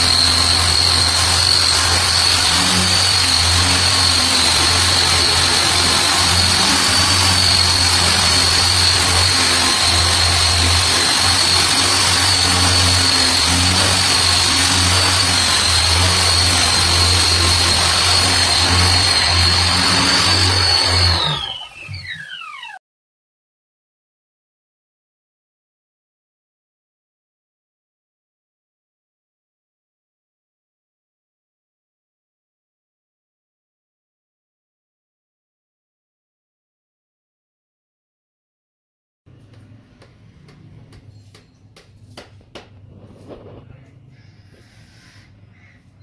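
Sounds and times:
electric disc sander on wood: 0.0 - 22.8.

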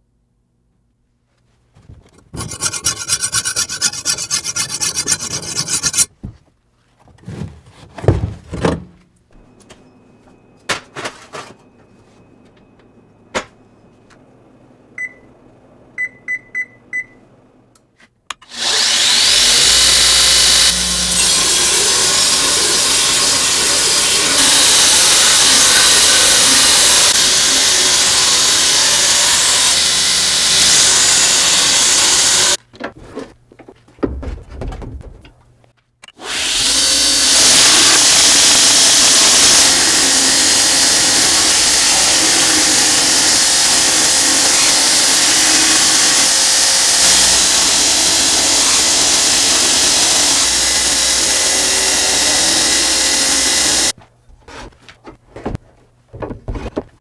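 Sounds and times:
belt grinder grinding steel: 2.1 - 6.1, 18.4 - 32.6, 36.1 - 54.0
file scraping on steel: 2.1 - 6.1, 19.0 - 32.6.

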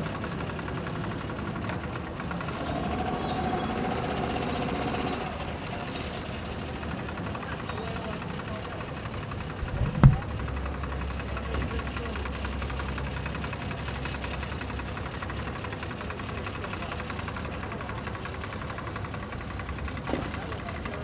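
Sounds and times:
engine idling: 0.0 - 21.0
sharp thump: 9.6 - 10.4.

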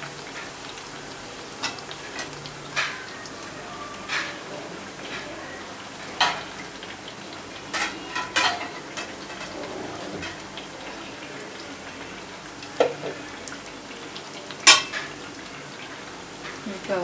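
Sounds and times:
food sizzling in oil: 0.0 - 17.0.

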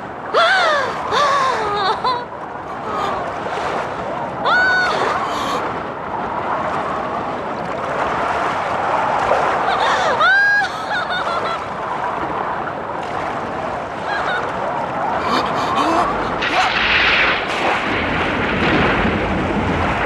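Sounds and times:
stormy sea waves: 0.0 - 20.0
wind: 0.0 - 20.0
high arching cry: 4.4 - 5.6, 9.7 - 11.6, 15.2 - 16.8.

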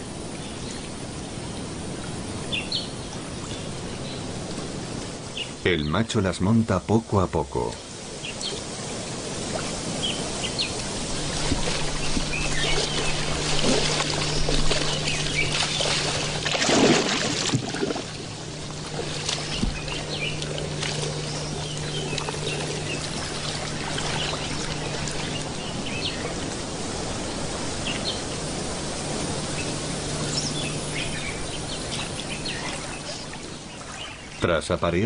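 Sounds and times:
water splashing and sloshing: 7.6 - 34.6.

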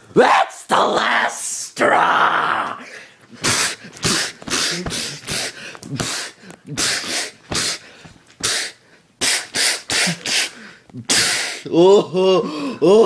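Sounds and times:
person grunting: 1.8 - 7.8, 11.0 - 13.0.

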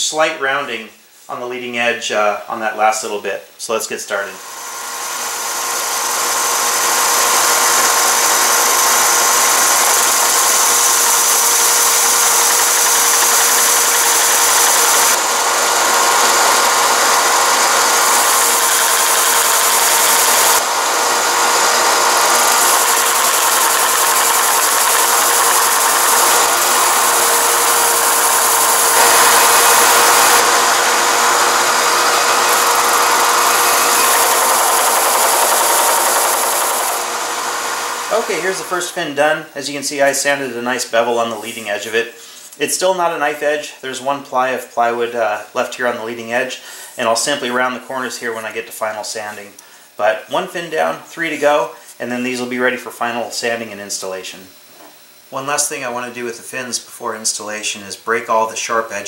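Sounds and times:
belt sander sanding plywood: 4.1 - 41.9.

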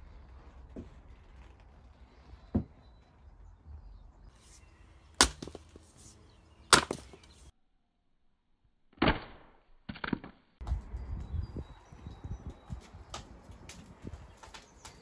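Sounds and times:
axe chopping logs: 5.1 - 5.9, 6.6 - 7.4.

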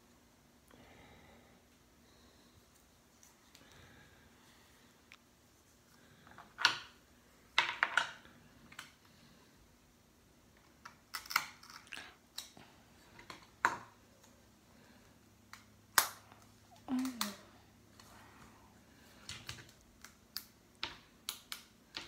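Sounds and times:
plastic clicks and snaps: 19.2 - 22.0.

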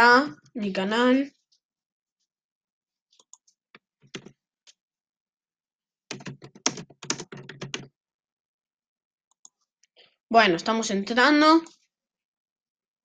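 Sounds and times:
computer keyboard typing: 4.1 - 4.3, 6.1 - 7.9.

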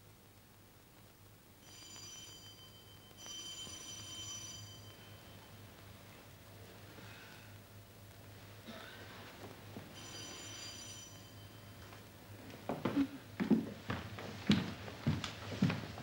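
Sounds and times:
electric bell ringing: 1.6 - 5.8, 9.9 - 12.0.

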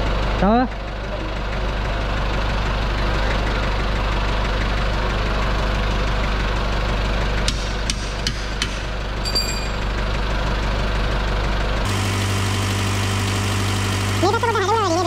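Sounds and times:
mechanical drone: 11.9 - 15.0.

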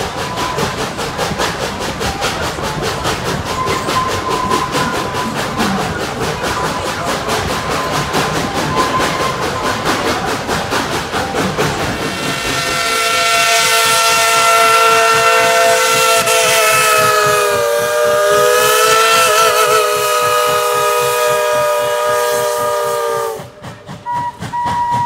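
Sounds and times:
steam locomotive whistle blast: 12.1 - 25.0.

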